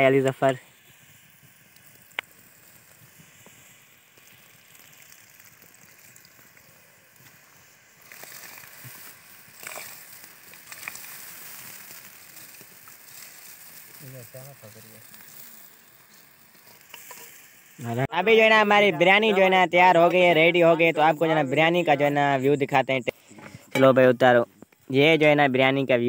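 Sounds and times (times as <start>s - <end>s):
rice pouring into pot: 0.0s - 18.0s
pot simmering hiss: 0.0s - 26.0s.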